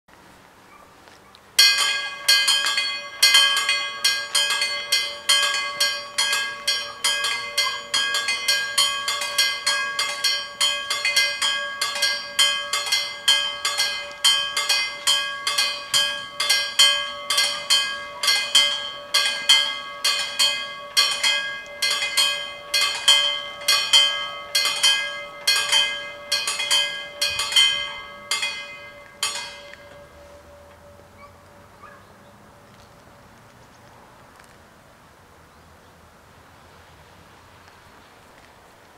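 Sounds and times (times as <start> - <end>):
level crossing bells ringing: 1.6 - 31.9.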